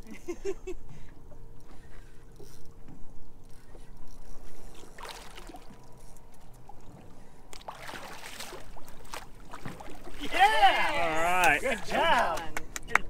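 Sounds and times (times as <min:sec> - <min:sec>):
fish splashing and thrashing: 0:04.2 - 0:10.5.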